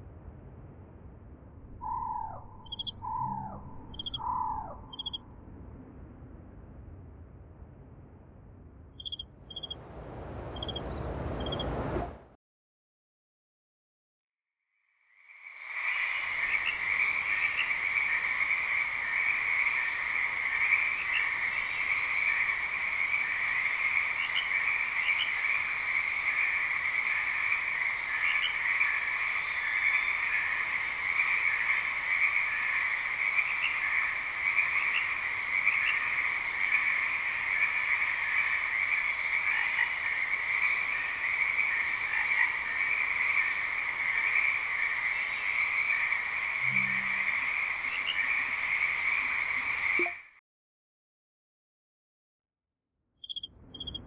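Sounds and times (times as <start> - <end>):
chorus of frogs: 1.8 - 5.2, 9.0 - 12.0, 15.0 - 50.4, 53.2 - 54.0.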